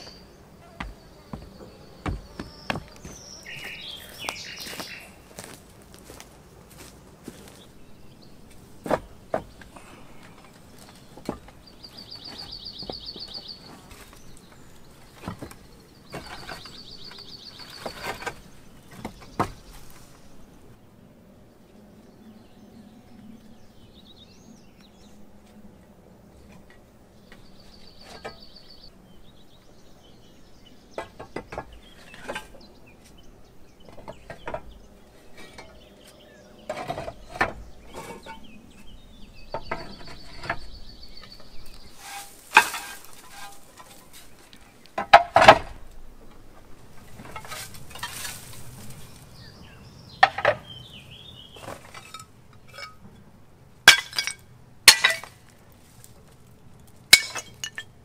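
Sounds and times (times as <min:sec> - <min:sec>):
scraping over tiles and debris: 0:41.7 - 0:44.4, 0:47.1 - 0:49.1, 0:51.5 - 0:53.0, 0:53.9 - 0:56.1, 0:57.2 - 0:58.0
roof tiles clinking and clacking: 0:42.0 - 0:44.4, 0:47.0 - 0:48.6, 0:51.6 - 0:53.1, 0:53.9 - 0:55.6, 0:57.1 - 0:58.0.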